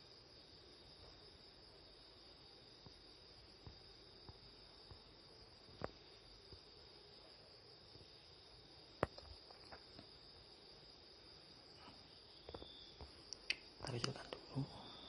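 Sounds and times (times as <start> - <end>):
faint ticks: 5.7 - 6.7.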